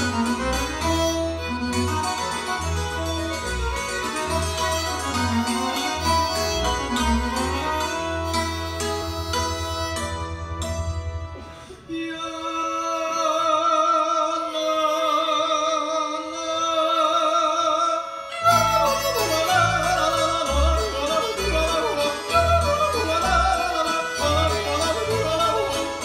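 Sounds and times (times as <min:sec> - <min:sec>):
double bass notes: 0:00.0 - 0:11.8, 0:18.4 - 0:26.0
string band playing: 0:00.0 - 0:26.0
person yodeling: 0:18.3 - 0:26.0.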